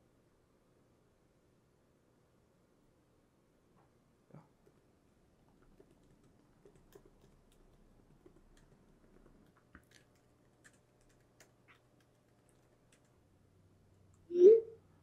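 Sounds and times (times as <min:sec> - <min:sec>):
typing on laptop keyboard: 0:05.4 - 0:13.2.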